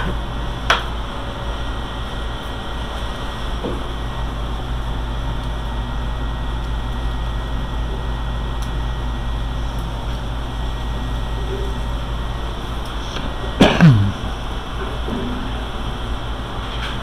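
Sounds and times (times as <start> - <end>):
fans humming and rushing air: 0.0 - 17.0
deep low drone: 13.6 - 14.9.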